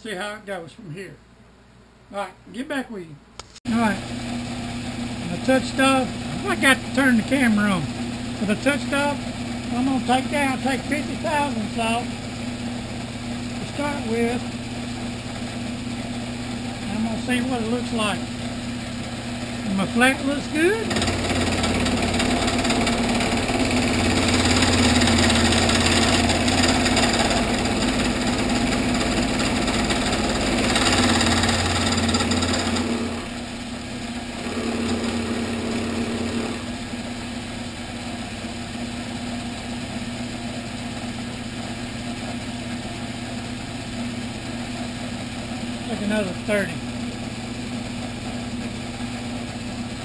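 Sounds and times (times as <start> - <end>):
spindle motor hum: 3.7 - 50.0
milling cutter cutting metal: 16.7 - 33.4, 34.3 - 36.8.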